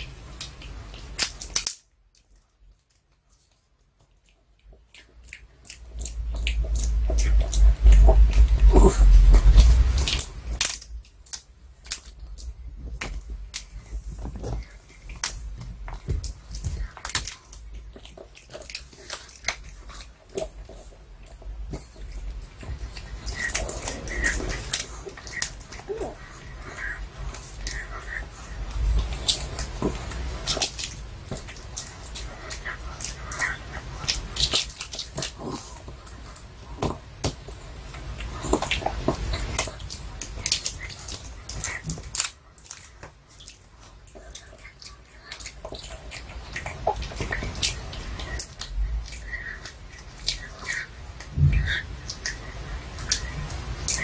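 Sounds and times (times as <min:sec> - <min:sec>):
dog crunching on bone chew: 0:00.0 - 0:54.0
teeth clicking on bone: 0:00.0 - 0:54.0.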